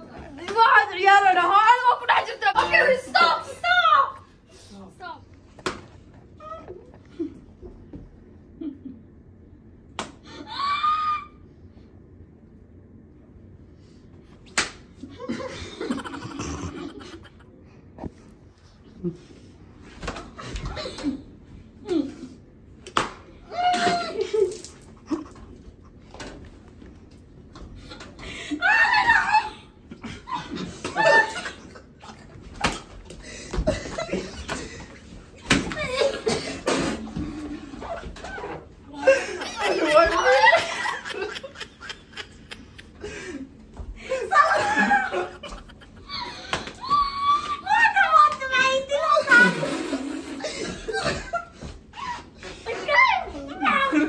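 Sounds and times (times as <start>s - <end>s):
tortilla slapping a face: 9.9s - 10.2s, 14.4s - 14.9s, 22.8s - 25.0s
shrieks and laughter: 10.3s - 11.4s, 27.9s - 48.3s, 49.0s - 54.0s.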